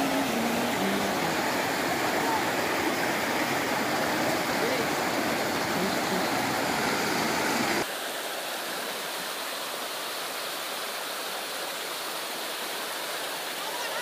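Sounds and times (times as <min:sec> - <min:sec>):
river rushing over rocks: 0:00.0 - 0:14.0.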